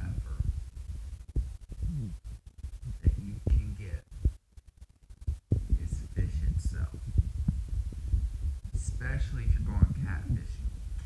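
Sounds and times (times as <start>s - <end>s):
man murmuring: 1.8s - 2.2s.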